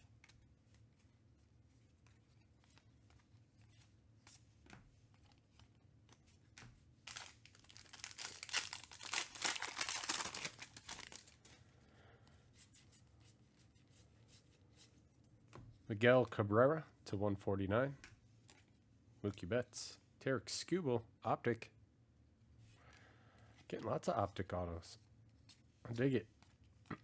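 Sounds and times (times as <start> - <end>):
card pack wrapper tearing: 7.0 - 11.4.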